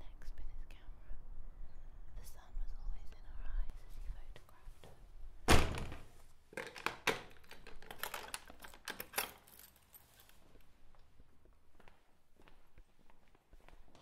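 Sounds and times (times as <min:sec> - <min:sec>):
crisp clicks and crackles: 0:06.5 - 0:10.4.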